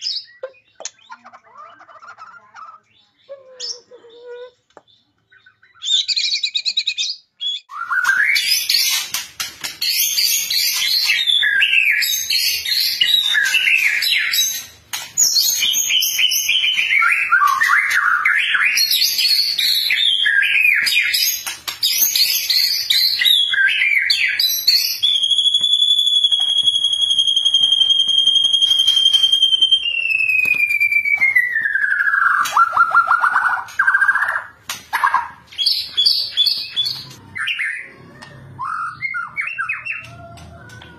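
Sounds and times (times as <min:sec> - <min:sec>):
bird trilling: 0:09.8 - 0:40.9
songbird whistling phrases: 0:38.6 - 0:40.4.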